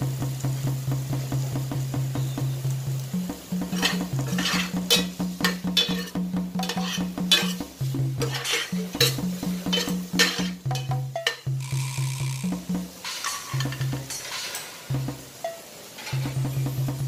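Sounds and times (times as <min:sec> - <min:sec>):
background music with bass: 0:00.0 - 0:14.2, 0:16.2 - 0:17.0
spoon scraping frying pan: 0:03.5 - 0:16.6.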